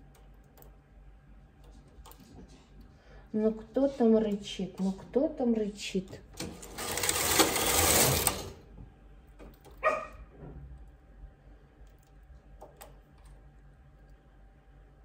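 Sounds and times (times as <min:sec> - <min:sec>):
knitting machine carriage sliding: 0:06.3 - 0:08.6
dog barking: 0:09.8 - 0:10.3.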